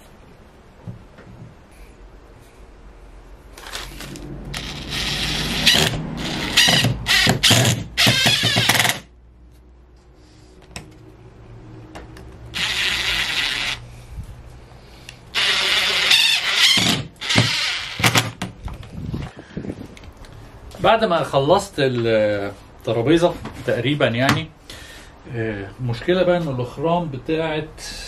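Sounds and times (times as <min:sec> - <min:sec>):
cordless driver driving screw into wood: 0:03.6 - 0:09.1, 0:12.6 - 0:13.8, 0:15.4 - 0:18.4.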